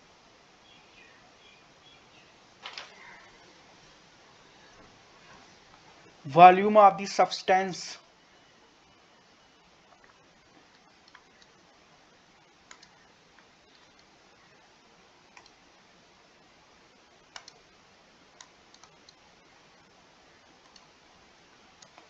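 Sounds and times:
computer mouse clicks: 0:09.9 - 0:11.6, 0:12.6 - 0:14.1, 0:15.3 - 0:15.6, 0:17.3 - 0:17.6, 0:18.4 - 0:19.2, 0:20.6 - 0:21.0, 0:21.8 - 0:22.0.

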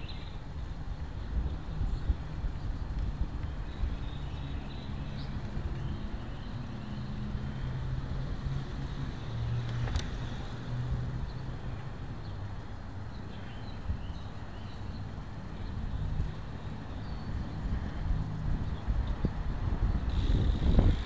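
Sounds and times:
wind noise: 0:00.0 - 0:05.9, 0:15.7 - 0:21.0
birds chirping: 0:00.0 - 0:10.6, 0:11.2 - 0:21.0
bicycle road rumble: 0:00.0 - 0:21.0.

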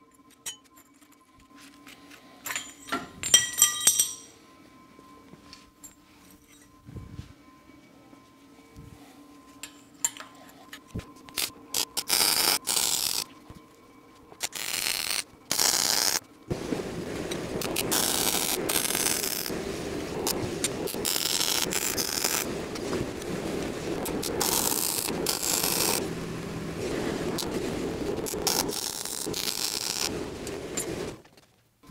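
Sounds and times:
welder arc crackling on steel: 0:10.8 - 0:13.3, 0:14.3 - 0:31.9.

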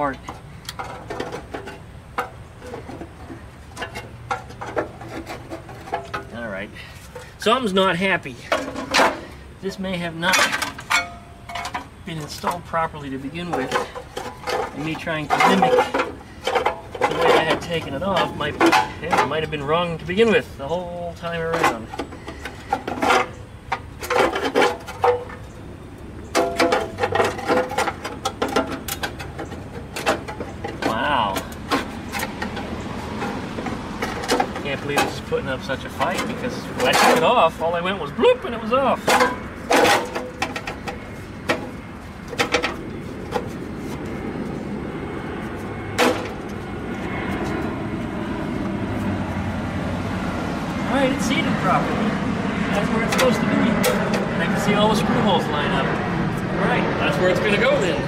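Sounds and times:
jet aircraft rumble: 0:00.0 - 0:58.0
sheet metal rattling and clanking: 0:13.4 - 0:19.6, 0:21.4 - 0:25.5, 0:26.3 - 0:37.7, 0:38.9 - 0:43.4.

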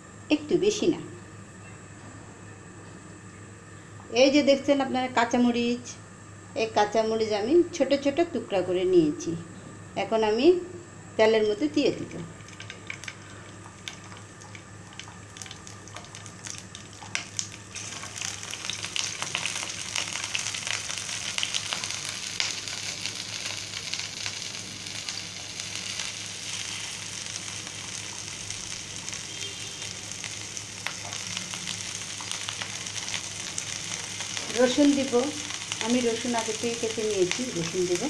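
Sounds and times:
chillies sizzling in hot oil: 0:11.5 - 0:38.0.

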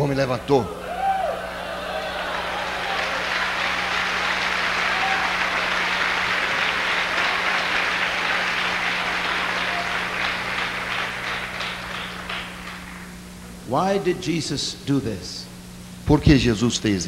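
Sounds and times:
steady low hum: 0:00.0 - 0:17.0
audience applauding: 0:00.9 - 0:13.3.

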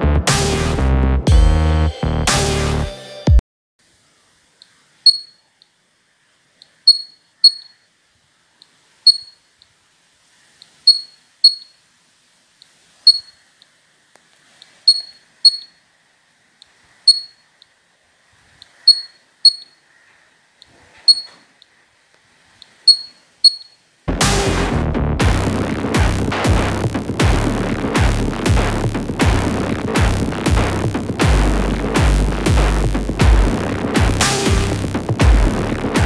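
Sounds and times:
piezo buzzer high-pitched ticks: 0:05.1 - 0:05.4, 0:06.9 - 0:07.7, 0:09.1 - 0:09.4, 0:10.9 - 0:11.7, 0:13.1 - 0:13.4, 0:14.9 - 0:15.8, 0:17.1 - 0:17.4, 0:18.9 - 0:19.8, 0:21.1 - 0:21.4, 0:22.9 - 0:23.8.

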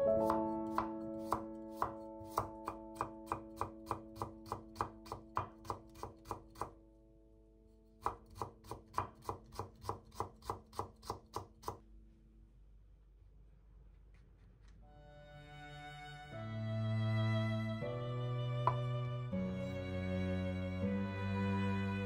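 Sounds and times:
knife cutting on wooden board: 0:00.2 - 0:06.8.

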